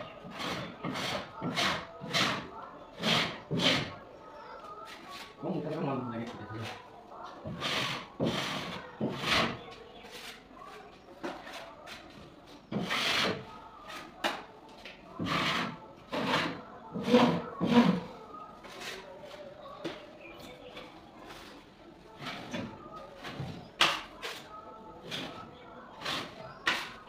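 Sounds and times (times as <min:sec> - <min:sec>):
tool scraping gypsum edge: 0:00.2 - 0:03.9, 0:07.4 - 0:10.4, 0:12.7 - 0:13.4, 0:15.2 - 0:18.1, 0:26.0 - 0:27.0.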